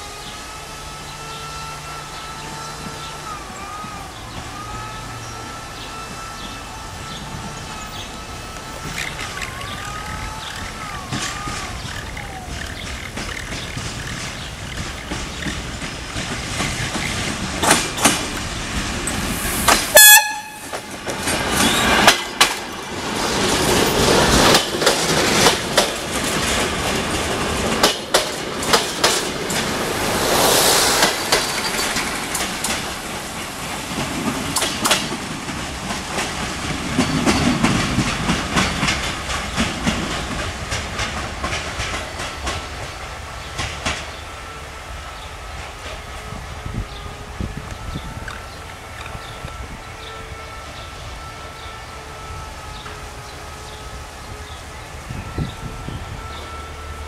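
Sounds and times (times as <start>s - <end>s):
train horn blast: 0.0s - 9.7s, 19.3s - 22.6s, 44.0s - 57.0s
train wheels clacking over rail joints: 0.0s - 44.6s.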